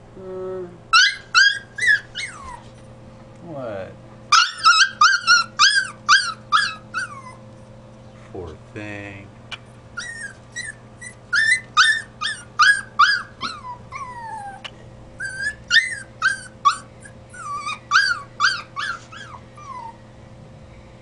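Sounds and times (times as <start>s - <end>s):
puppy whining and yelping: 0.9s - 2.9s, 4.3s - 7.8s, 10.0s - 20.0s.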